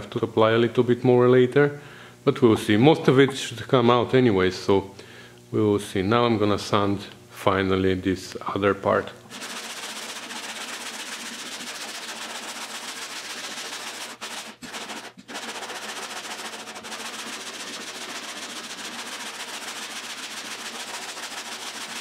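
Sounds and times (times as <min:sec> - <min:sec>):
hand sanding rasping: 0:09.3 - 0:22.0.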